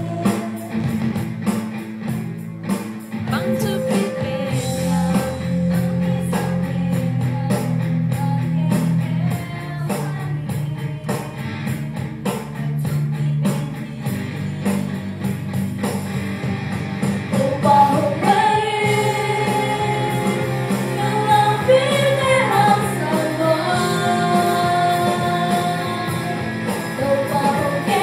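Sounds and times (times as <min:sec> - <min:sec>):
live band playing: 0:00.0 - 0:28.0
women singing: 0:03.3 - 0:11.9, 0:17.4 - 0:28.0.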